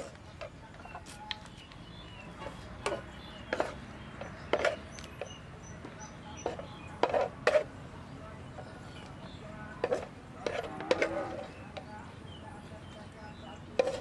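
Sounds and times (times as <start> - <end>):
spatula scraping a frying pan: 0.0 - 1.0, 2.4 - 4.9, 6.4 - 7.7, 9.8 - 11.8, 13.7 - 14.0.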